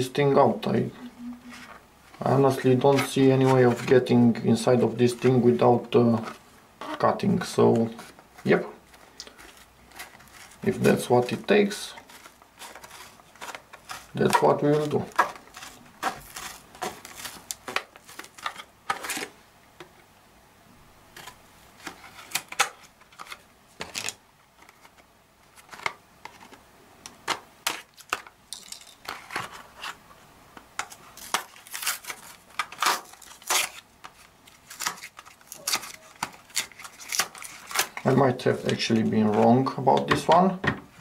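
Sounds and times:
plastic packaging crackling: 11.8 - 19.4, 30.8 - 39.8.

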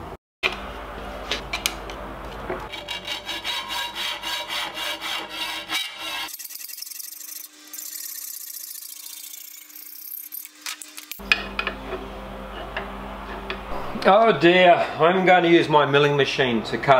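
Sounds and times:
hacksaw cutting metal: 2.7 - 11.8.

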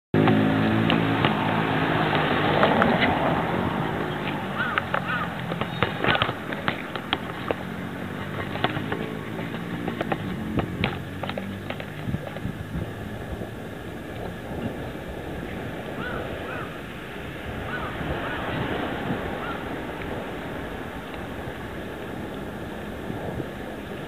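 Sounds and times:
motor vehicle engine hum: 0.2 - 24.0
clicks and knocks from bicycle: 4.1 - 12.5.

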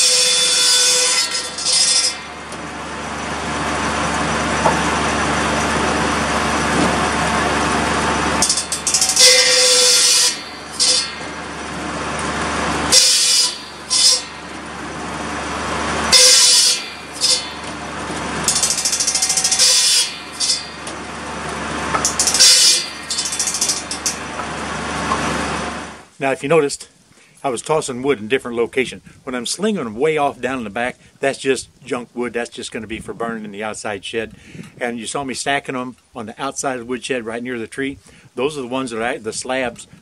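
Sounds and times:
saw blade spinning: 0.0 - 26.0
circular saw cutting wood: 0.0 - 26.1
tractor engine running: 1.4 - 26.2.

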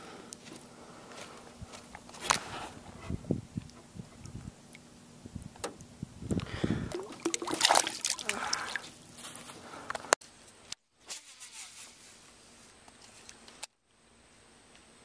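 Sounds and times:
water lapping: 6.8 - 9.2
water splashing and trickling: 6.8 - 9.2.

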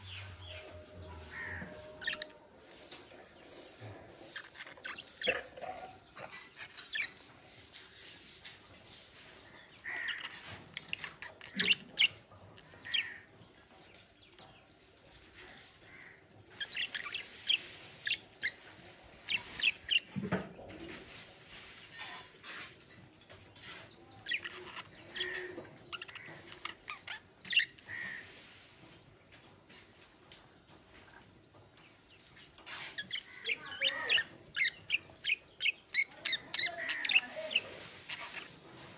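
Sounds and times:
budgerigars chirping: 4.2 - 7.3, 9.8 - 13.3, 15.9 - 20.2, 24.2 - 28.4, 33.0 - 38.6.

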